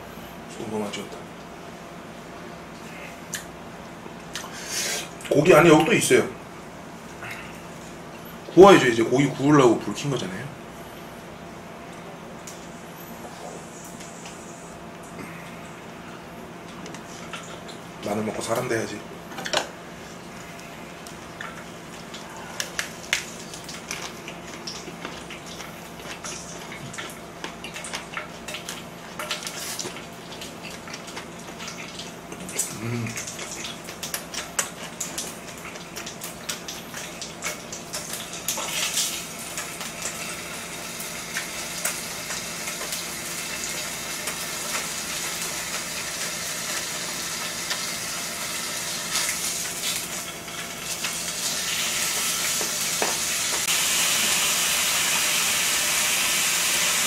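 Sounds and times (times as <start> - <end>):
pork sizzling in a pan: 34.4 - 57.0.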